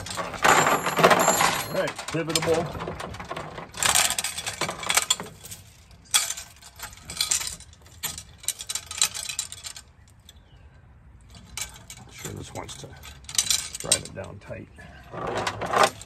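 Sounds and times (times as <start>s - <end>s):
metal chains jingling and clinking: 0.0s - 2.3s.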